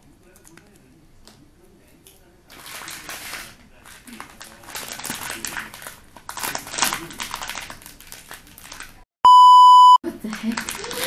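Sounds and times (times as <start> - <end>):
plastic packaging crinkling: 2.5 - 9.0, 10.3 - 11.0
loud electronic beep: 9.3 - 10.0.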